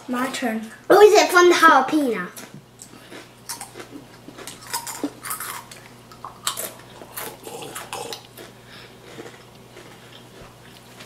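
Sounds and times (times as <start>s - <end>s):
chewing crunchy chip: 2.4s - 11.0s.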